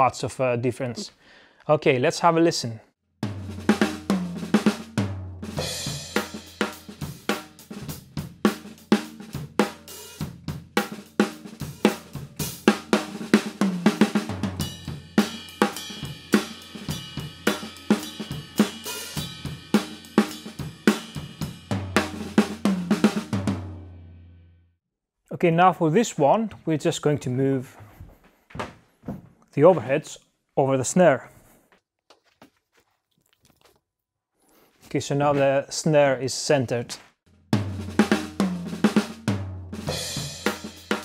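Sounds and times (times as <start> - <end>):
drum kit groove: 3.2 - 24.0, 36.9 - 41.0
cymbal crashes: 14.6 - 21.7.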